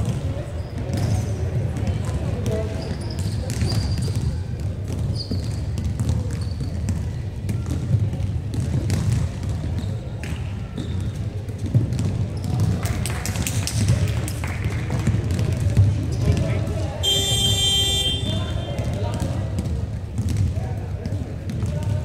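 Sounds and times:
basketball bouncing on court: 0.0s - 22.0s
shoe squeaks: 2.7s - 4.3s, 5.0s - 6.9s, 9.8s - 10.1s.

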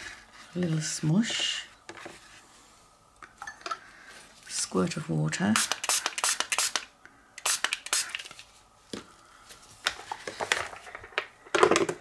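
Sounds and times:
spray bottle squirts: 5.6s - 8.3s.

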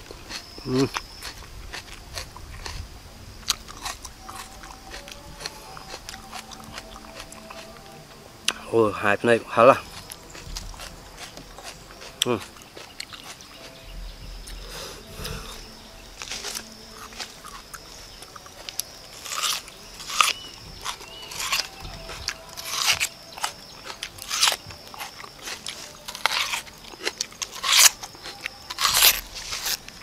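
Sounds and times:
crunching raw onion: 9.9s - 13.7s, 16.2s - 30.0s.

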